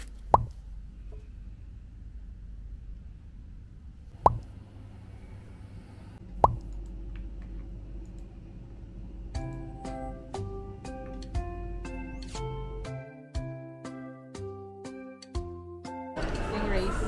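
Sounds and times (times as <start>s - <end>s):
low room hum: 0.0s - 13.0s
soft piano music: 9.2s - 17.0s.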